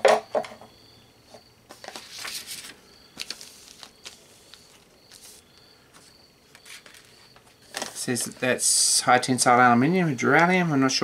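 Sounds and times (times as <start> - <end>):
paper and plastic bags rustling: 1.7 - 8.6.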